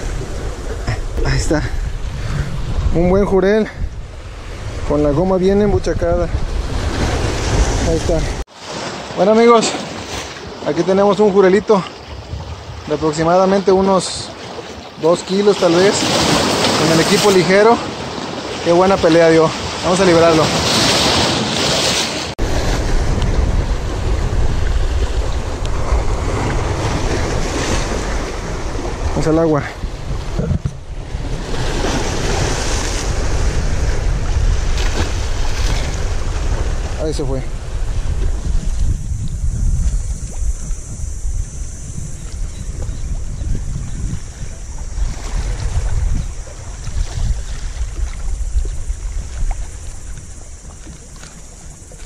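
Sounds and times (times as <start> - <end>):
wind buffeting microphone: 0.0 - 8.5, 9.6 - 14.8, 15.4 - 52.0
surf washing against rocks: 0.0 - 52.0
small waves against rocks: 14.2 - 23.0.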